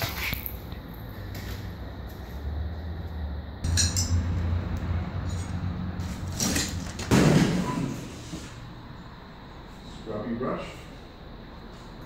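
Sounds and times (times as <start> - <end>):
steady low rumble: 0.6 - 6.4.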